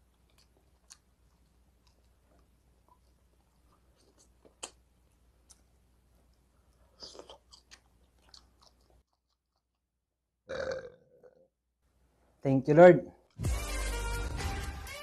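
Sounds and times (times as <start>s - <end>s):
man chewing food: 0.0s - 9.9s
wet mouth clicks: 0.2s - 4.8s.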